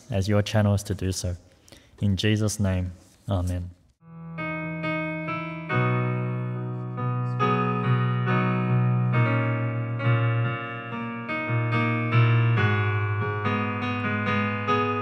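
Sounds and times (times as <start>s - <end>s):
keyboard playing sustained chords: 4.0s - 15.0s.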